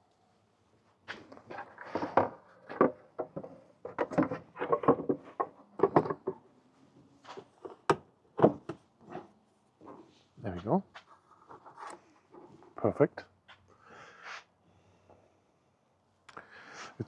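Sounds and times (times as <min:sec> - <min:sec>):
hard plastic clicks and knocks: 0:01.9 - 0:06.4.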